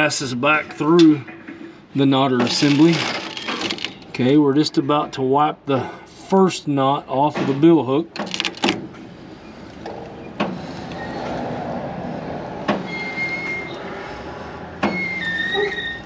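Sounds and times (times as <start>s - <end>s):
high squeaks: 12.8s - 13.9s, 14.9s - 16.0s.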